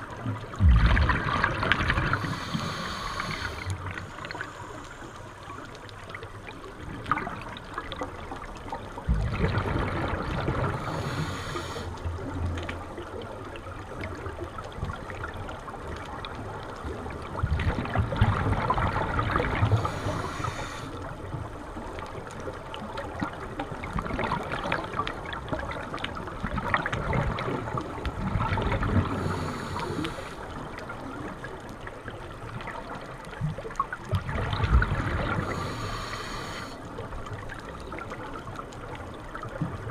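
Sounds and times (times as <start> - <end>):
exhaled regulator bubbles: 0.0 - 4.4, 9.0 - 12.3
underwater rushing and bubbling: 0.0 - 39.9.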